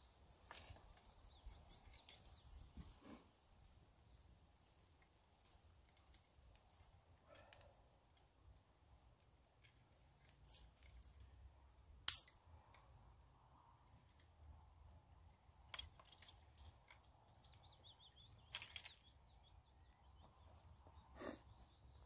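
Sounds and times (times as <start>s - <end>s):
campfire crackling: 3.4s - 13.4s.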